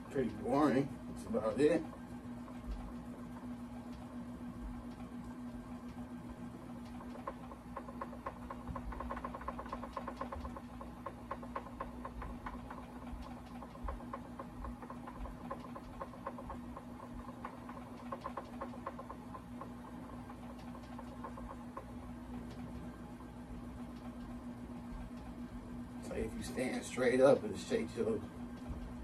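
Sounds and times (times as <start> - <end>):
fast irregular clicking and rattling: 0.0 - 4.1, 6.6 - 29.0
motor hum: 0.0 - 29.0.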